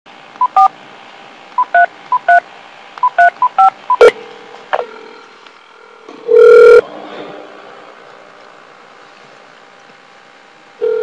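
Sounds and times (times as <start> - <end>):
touch-tone dialing tones: 1.6 - 2.4, 3.0 - 4.1.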